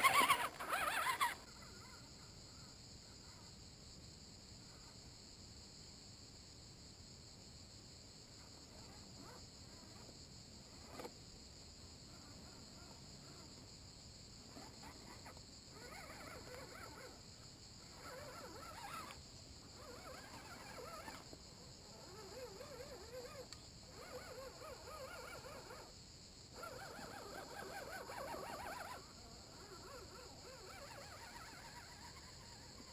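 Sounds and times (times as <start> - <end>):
wavering whines: 0.0 - 2.1, 14.5 - 17.2, 17.8 - 25.9
insects buzzing: 0.0 - 32.9.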